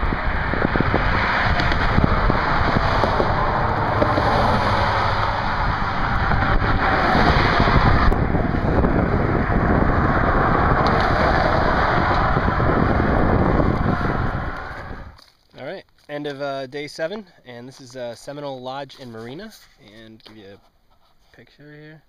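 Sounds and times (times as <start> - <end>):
highway traffic: 0.0 - 15.2
wind buffeting microphone: 0.0 - 15.2.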